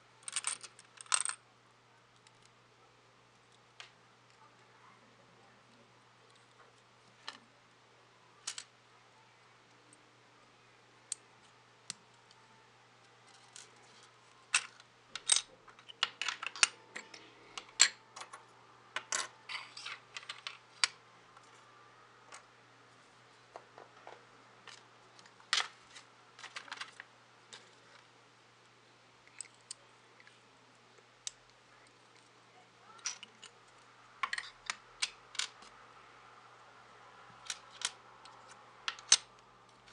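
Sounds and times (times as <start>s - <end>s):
plastic pieces clicking and clattering: 14.5s - 18.4s.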